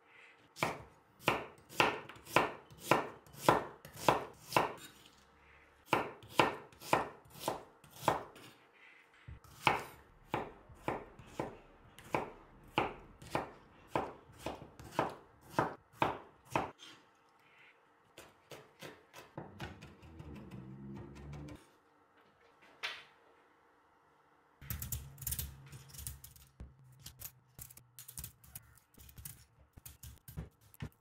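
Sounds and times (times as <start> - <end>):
knife chopping on wooden board: 0.6 - 4.9, 5.9 - 8.5, 9.4 - 16.8.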